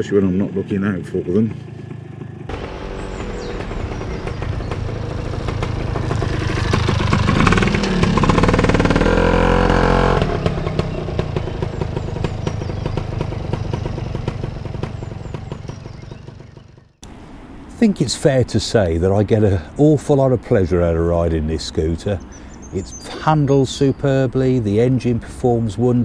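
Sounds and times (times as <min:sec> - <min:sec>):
two-stroke scooter engine passing: 0:00.2 - 0:17.7.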